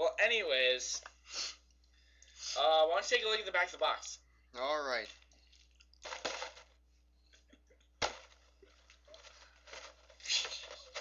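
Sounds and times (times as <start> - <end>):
cardboard box rustling: 8.8 - 11.0.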